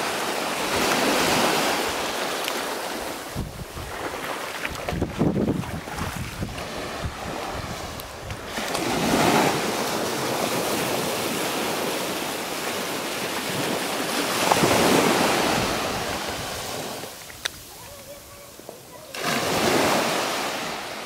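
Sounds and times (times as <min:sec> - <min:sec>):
small waves breaking on shore: 0:00.0 - 0:21.0
wind rumble on microphone: 0:03.2 - 0:09.8.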